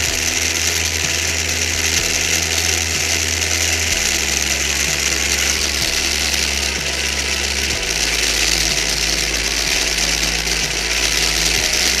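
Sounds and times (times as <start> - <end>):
gears and wheels whirring: 0.0 - 12.0
low stepping hum: 0.0 - 12.0.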